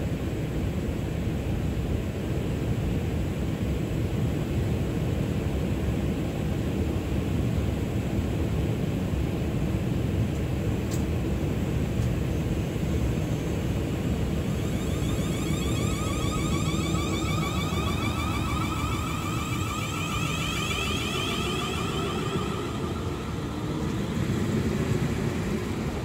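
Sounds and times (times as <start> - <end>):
train equipment humming: 10.3 - 26.0
rapid warbling electronic beeping: 14.4 - 25.8.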